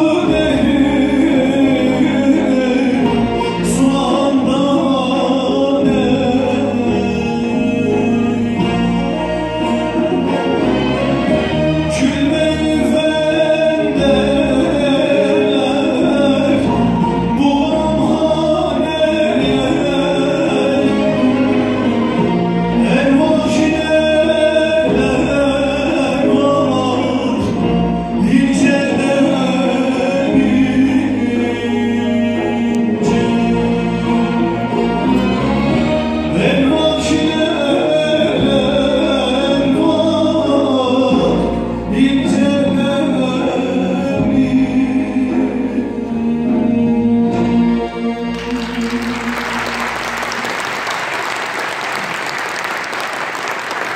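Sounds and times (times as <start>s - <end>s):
folk ensemble with lutes: 0.0s - 50.9s
men singing folk song: 11.9s - 46.7s
audience applause: 48.3s - 53.9s.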